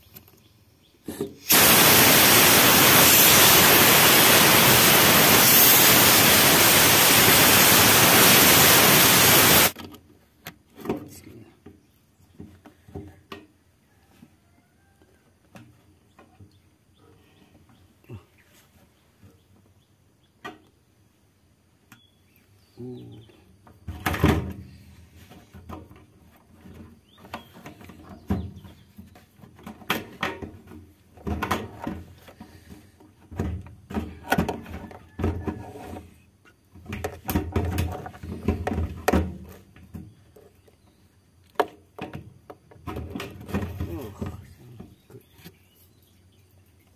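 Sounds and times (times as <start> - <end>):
plastic parts clunking and knocking: 9.8 - 13.6, 23.6 - 24.7, 25.3 - 36.1, 36.7 - 40.7, 41.5 - 45.6.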